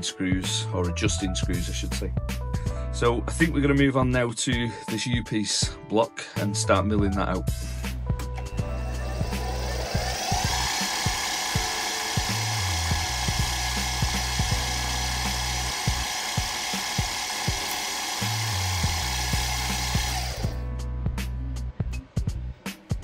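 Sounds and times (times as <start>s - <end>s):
background music with steady beat: 0.0s - 23.0s
milling machine spindle whine: 8.4s - 20.6s.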